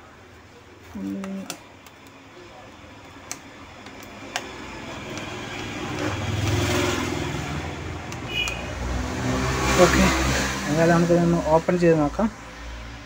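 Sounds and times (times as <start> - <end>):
motor vehicle engine: 3.2 - 11.9.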